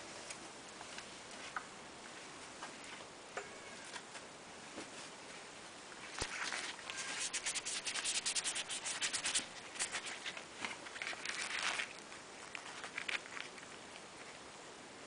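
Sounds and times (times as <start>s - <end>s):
rubbing and scraping: 6.1s - 14.3s.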